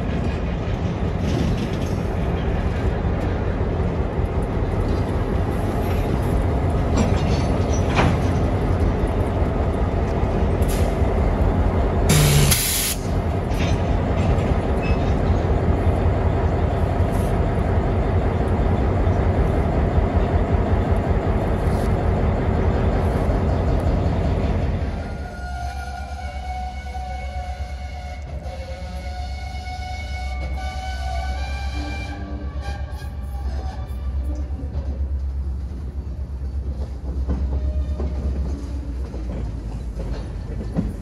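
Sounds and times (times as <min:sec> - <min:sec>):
diesel locomotive rumble: 0:00.0 - 0:41.0
loud hiss: 0:12.1 - 0:13.1.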